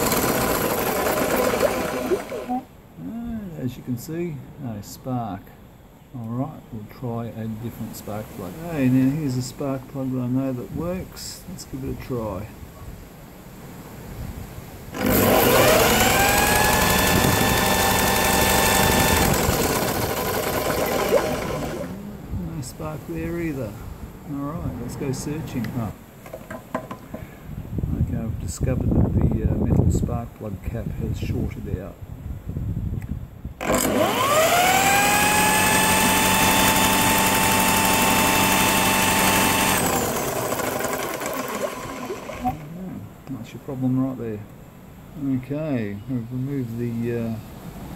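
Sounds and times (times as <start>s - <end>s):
electric motor whining: 0.0s - 2.7s, 14.9s - 22.1s, 33.6s - 42.7s
lawnmower engine cranking whir: 0.0s - 2.7s, 14.9s - 22.0s, 33.6s - 42.7s.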